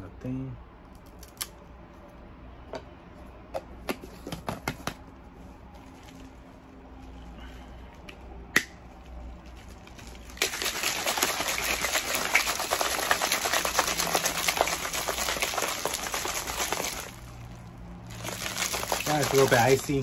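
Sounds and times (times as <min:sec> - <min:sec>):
ice rattling in shaken cup: 0:09.4 - 0:20.0.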